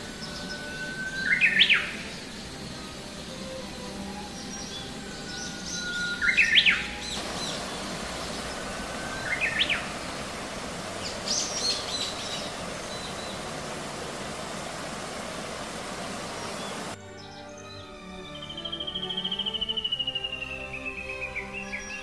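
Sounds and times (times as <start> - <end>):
high bird twittering: 0.0 - 2.6, 4.2 - 17.6
songbird whistling song: 0.0 - 22.0
stream rushing over rock: 4.7 - 17.0.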